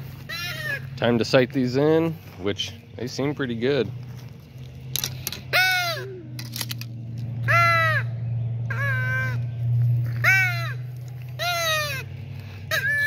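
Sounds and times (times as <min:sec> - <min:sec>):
crow cawing: 0:00.0 - 0:01.0, 0:05.4 - 0:06.2, 0:07.4 - 0:13.0
steady low hum: 0:00.0 - 0:13.0.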